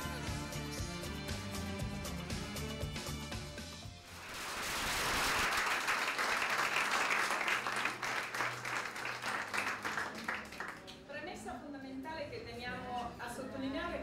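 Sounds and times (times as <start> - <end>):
music: 0.0 - 4.2, 7.2 - 14.0
audience applauding: 4.1 - 11.0.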